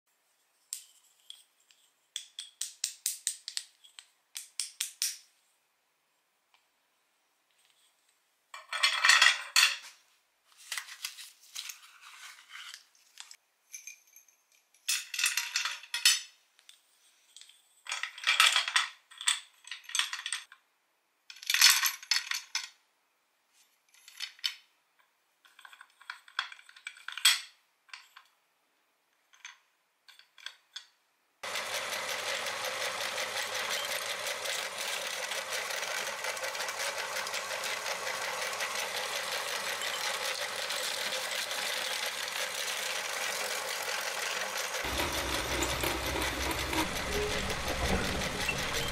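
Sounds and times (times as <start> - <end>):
electric meat grinder motor drone: 31.4 - 48.9.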